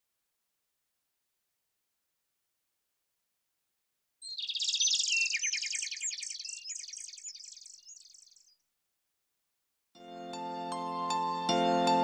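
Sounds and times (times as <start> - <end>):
birds chirping: 4.2 - 8.6.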